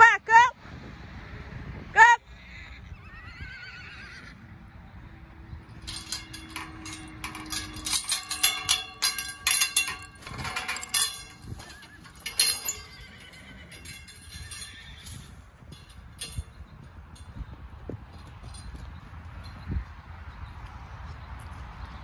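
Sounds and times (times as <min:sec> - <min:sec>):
horses whinnying: 0:02.3 - 0:04.4, 0:05.9 - 0:15.4
metal gate chain rattling: 0:05.6 - 0:17.4, 0:18.1 - 0:19.8
hooves clopping: 0:05.6 - 0:22.0.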